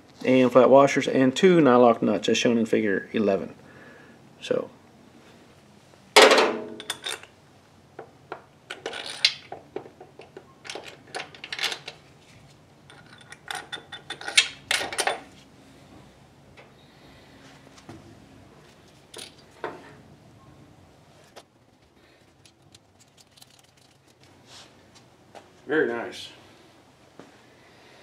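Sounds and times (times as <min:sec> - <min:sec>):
loud metal clank: 0:06.2 - 0:06.9
metal parts clinking: 0:06.3 - 0:07.3, 0:08.7 - 0:09.6, 0:10.2 - 0:12.0, 0:12.9 - 0:15.3, 0:19.1 - 0:19.5, 0:22.4 - 0:24.2.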